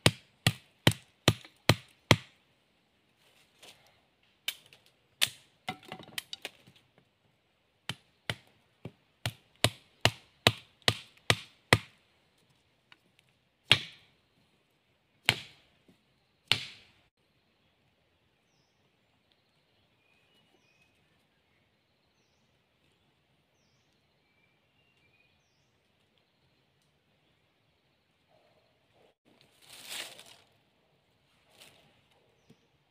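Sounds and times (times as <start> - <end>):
wooden knocks driving stakes: 5.2 - 6.8.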